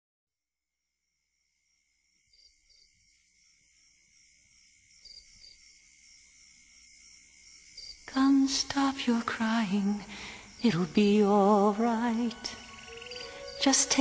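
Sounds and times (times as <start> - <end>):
steady high tone: 11.4 - 14.0
soft high chirps: 12.4 - 13.9.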